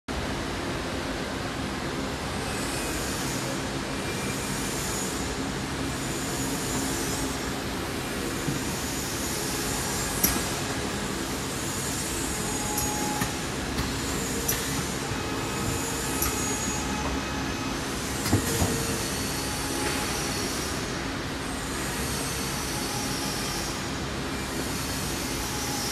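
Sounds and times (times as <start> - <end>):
weighing machine humming: 4.2 - 23.4.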